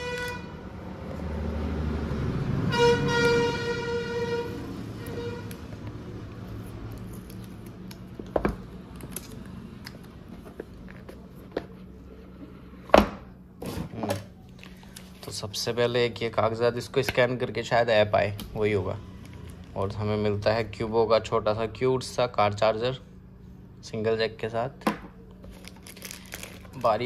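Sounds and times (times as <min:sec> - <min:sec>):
vehicle horn honking: 0:00.0 - 0:00.7, 0:02.6 - 0:05.7
low traffic rumble: 0:00.0 - 0:27.0.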